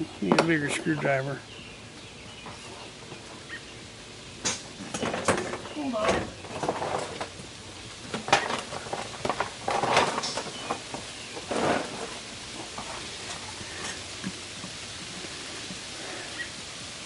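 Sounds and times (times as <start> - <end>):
hand tools clattering: 8.1 - 14.8.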